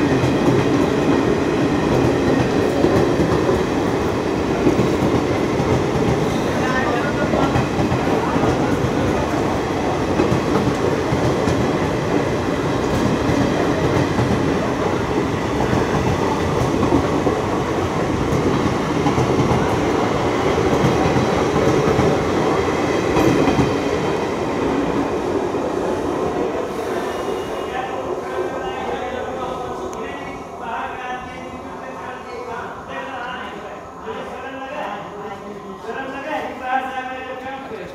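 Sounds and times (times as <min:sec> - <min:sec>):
train wheels rumbling and clattering: 0:00.0 - 0:27.4.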